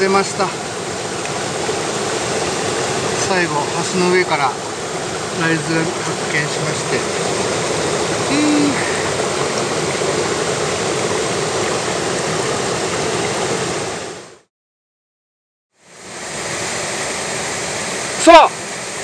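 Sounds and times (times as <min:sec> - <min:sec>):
mountain stream rushing: 0:00.0 - 0:14.5, 0:15.8 - 0:19.0.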